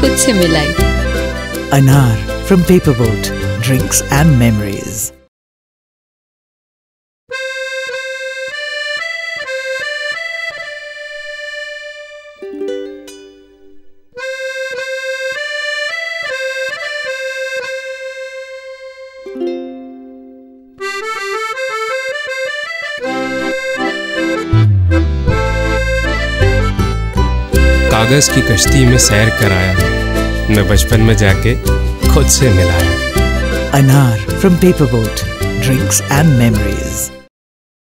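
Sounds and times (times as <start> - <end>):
instrumental background music: 0.0 - 5.3, 7.3 - 37.3
deep bass: 24.2 - 36.7.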